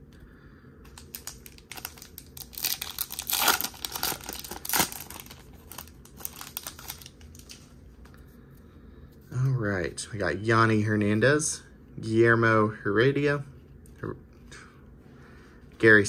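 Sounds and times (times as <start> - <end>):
wrapper crinkling and tearing: 0.9 - 7.7.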